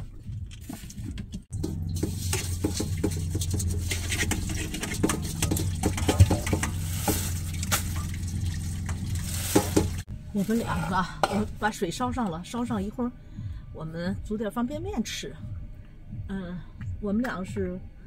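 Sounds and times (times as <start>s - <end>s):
pot and containers clattering: 0.6s - 11.6s
steady low hum: 1.4s - 18.0s
water filling a pot: 1.6s - 10.1s.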